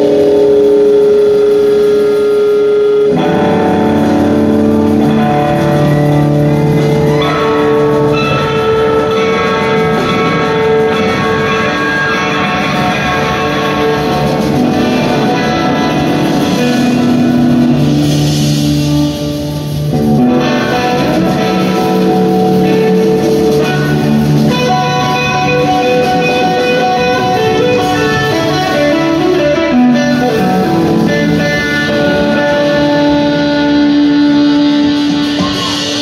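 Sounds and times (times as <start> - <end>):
electric guitar melody: 0.0 - 36.0
live rock band playing: 0.0 - 36.0.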